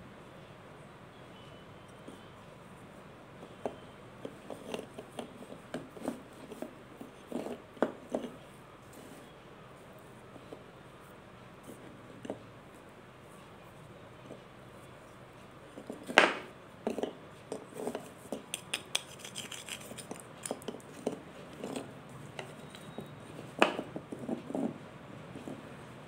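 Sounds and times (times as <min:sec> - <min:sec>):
mothballs crunching by hand: 0:18.6 - 0:20.7.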